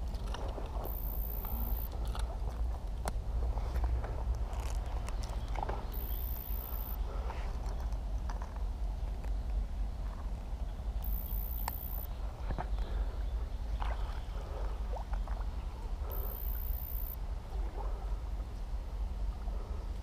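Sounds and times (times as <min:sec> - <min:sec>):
water sloshing and splashing: 0:00.0 - 0:05.9, 0:13.7 - 0:16.0
steady low rumble: 0:00.0 - 0:20.0.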